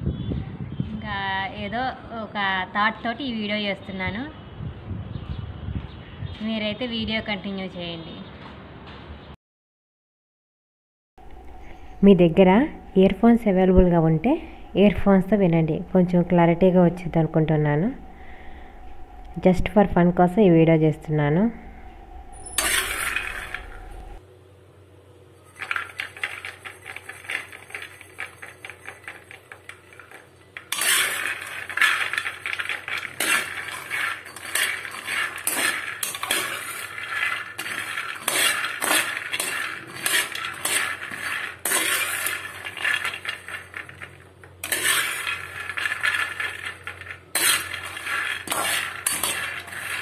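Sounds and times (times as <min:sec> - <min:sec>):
ladle scraping metal pan: 0:21.4 - 0:24.2, 0:25.5 - 0:50.0
nuts rattling in metal pan: 0:22.4 - 0:24.1, 0:25.4 - 0:50.0.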